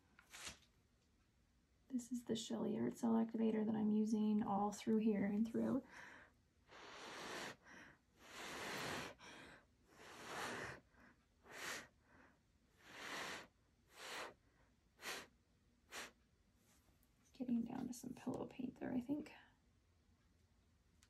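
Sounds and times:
person blowing breathy puffs: 6.7 - 7.6, 8.2 - 9.2, 9.9 - 10.8, 11.4 - 11.9, 12.8 - 14.4, 15.0 - 16.2.

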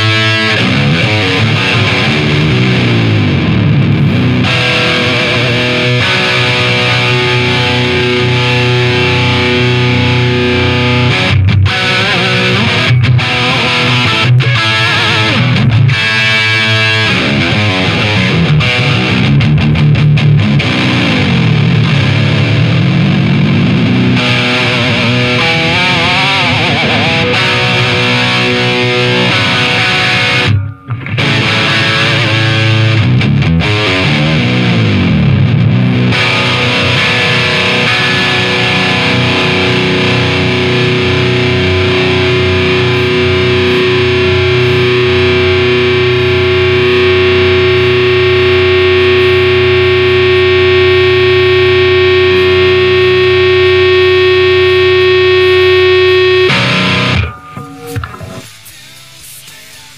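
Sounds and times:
distorted electric guitar: 0.0 - 59.9
guitar feedback: 0.0 - 59.9.

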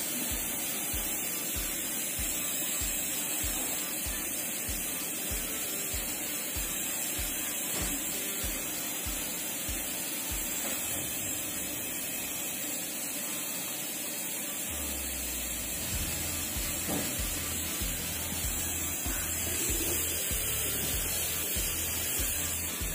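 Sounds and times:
music with bass beat: 0.0 - 12.2, 14.7 - 22.9.

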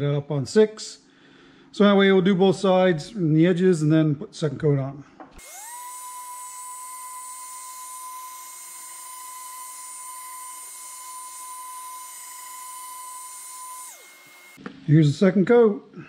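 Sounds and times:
orbital sander whine: 5.4 - 14.7.

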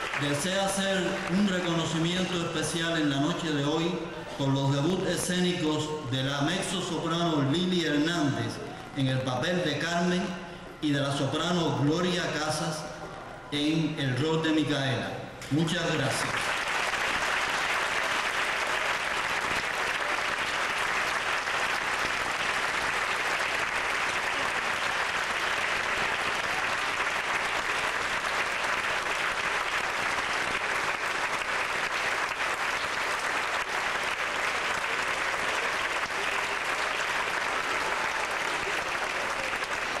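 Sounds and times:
audience applauding: 0.0 - 3.4, 16.0 - 40.0.

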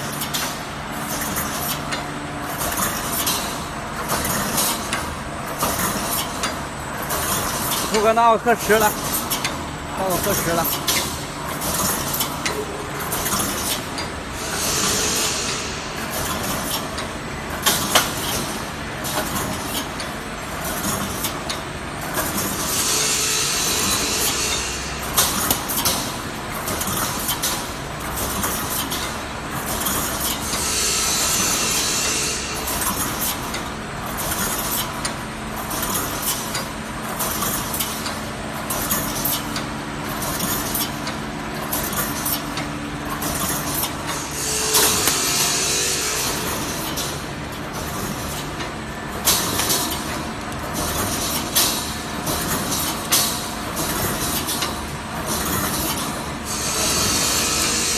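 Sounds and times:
welding machine clattering: 0.0 - 57.9
hiss: 14.4 - 16.3, 56.5 - 57.9.

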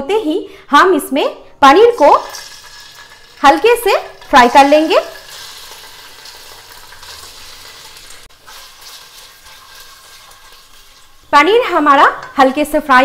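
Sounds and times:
cheese sizzling in oil: 2.0 - 13.0
spatula stirring: 2.3 - 11.4.

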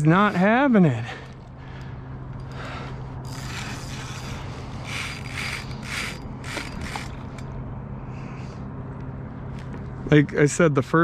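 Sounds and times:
fishing reel ratcheting: 2.4 - 7.5.

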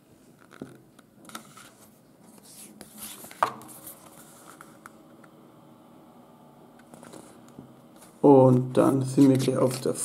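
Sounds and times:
paper rustling and sliding: 1.3 - 4.9, 6.9 - 7.4, 8.0 - 10.0.

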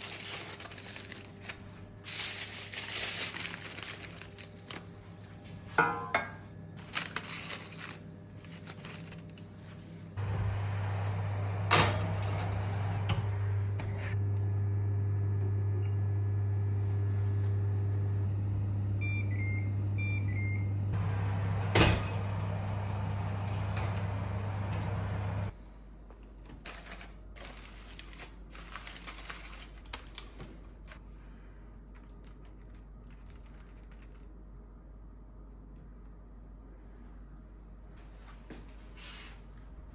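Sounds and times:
foil crinkling: 0.0 - 5.1, 6.8 - 9.8, 26.7 - 31.0, 31.9 - 34.4
fan oven humming: 0.0 - 39.9
oven control beeps: 18.3 - 21.0.

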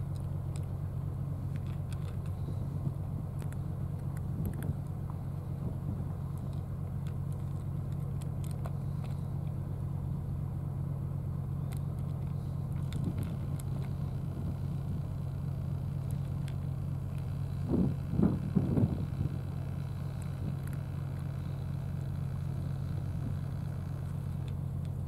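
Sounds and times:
engine idling: 0.0 - 25.0
cats eating from plastic trays: 1.4 - 5.0, 6.2 - 9.6, 11.6 - 17.3, 19.6 - 21.3.

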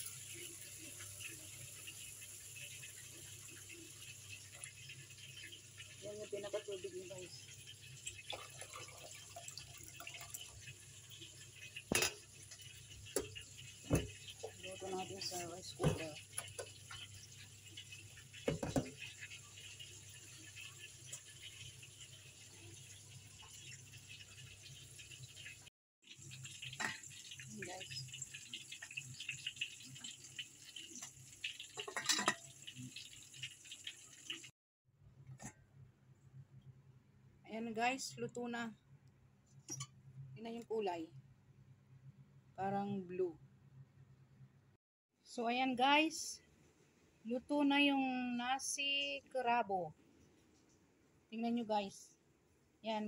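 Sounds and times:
water pouring into metal pot: 0.0 - 34.5
metal lid clattering on pot: 31.8 - 32.4.

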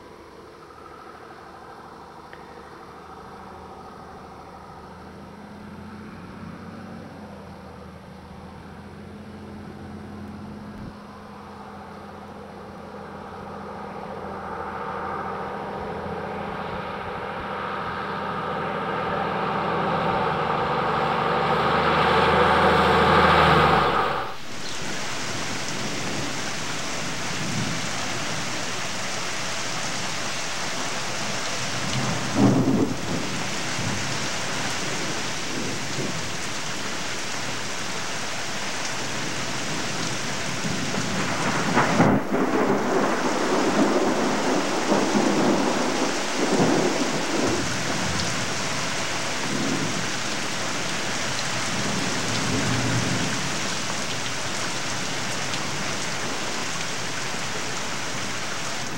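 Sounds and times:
heavy rain: 0.0 - 58.9
thunder rumbling: 19.0 - 37.0, 39.0 - 56.9.

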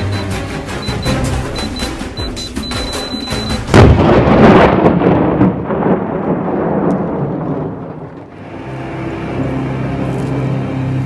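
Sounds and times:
loud rolling boom: 3.7 - 8.4
low music drone: 8.4 - 11.0.

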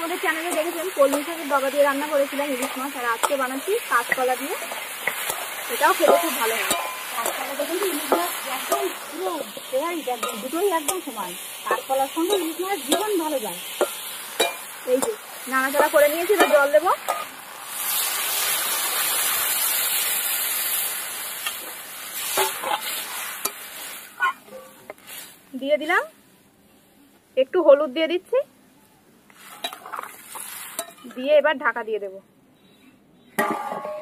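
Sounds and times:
metal spatula scraping wok: 0.0 - 18.3, 21.4 - 25.4, 29.4 - 31.4
water sizzling in hot pan: 0.0 - 25.7, 29.3 - 31.2.

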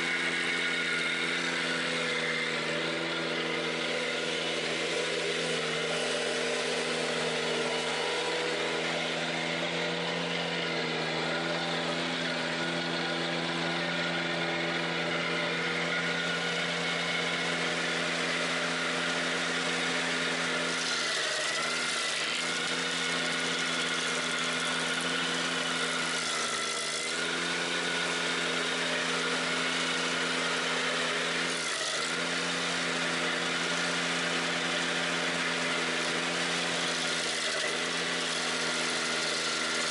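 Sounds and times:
tractor engine running: 0.0 - 20.8.

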